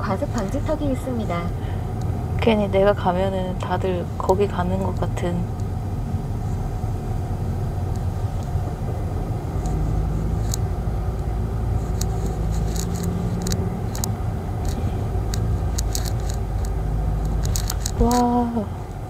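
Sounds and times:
car engine and tyre rumble: 0.0 - 19.0
low hum: 0.0 - 19.0.

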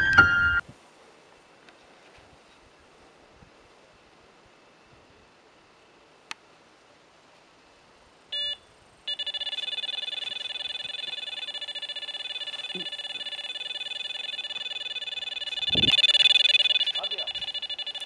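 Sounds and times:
electronic bite alarm beeps: 8.4 - 18.0.

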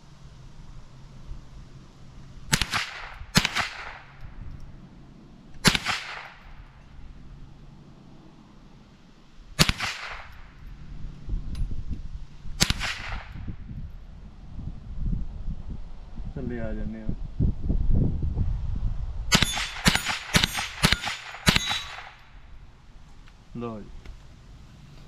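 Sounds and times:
rifle shots with echo: 2.5 - 4.2, 5.6 - 6.6, 9.6 - 10.5, 12.6 - 13.4, 19.3 - 22.3.

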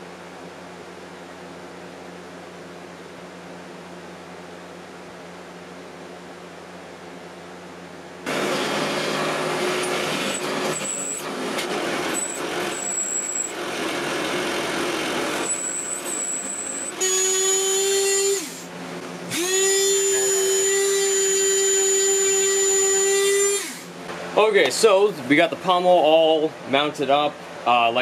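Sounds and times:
motor humming: 8.2 - 24.2
drill press cutting metal: 8.3 - 18.7, 19.3 - 23.9.

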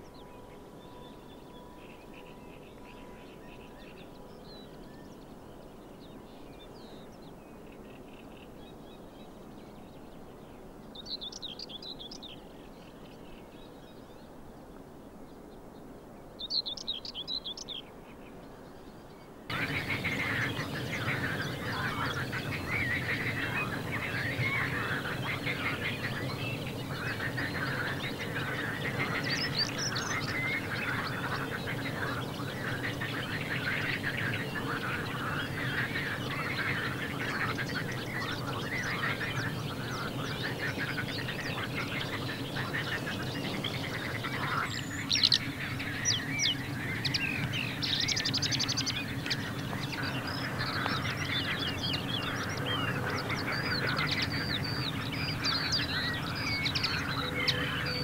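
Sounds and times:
songbirds singing: 0.0 - 58.0
geese and ducks calling: 19.5 - 58.0.

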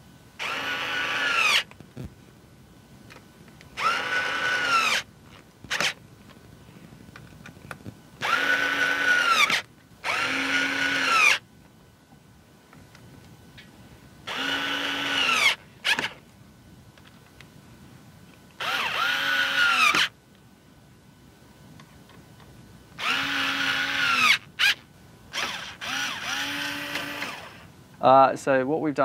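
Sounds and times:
electric screwdriver whining: 0.4 - 1.8, 3.8 - 5.1, 5.7 - 6.0, 8.2 - 11.4, 14.3 - 16.2, 18.6 - 20.1, 23.0 - 27.6.

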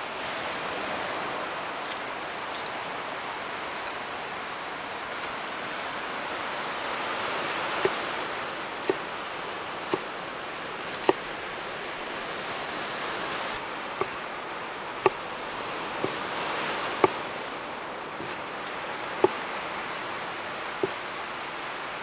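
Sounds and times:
knife slicing onion: 7.8 - 9.0, 9.6 - 10.1, 10.8 - 11.2, 15.9 - 16.2, 16.9 - 17.3, 18.0 - 18.4, 19.1 - 19.4, 20.7 - 21.0
steady rushing noise: 12.7 - 22.0
knife knocking on cutting board: 18.2 - 18.4.

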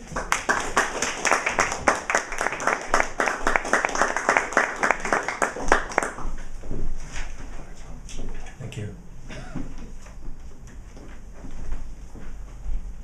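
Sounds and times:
small audience applauding: 0.0 - 6.5.

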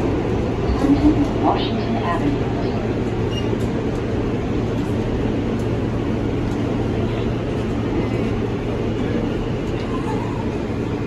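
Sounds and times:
subway car rumbling: 0.0 - 11.0.

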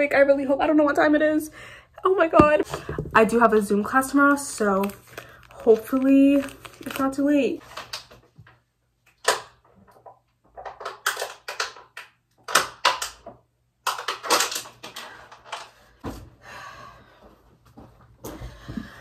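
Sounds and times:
plastic bottle handling: 2.4 - 3.4.

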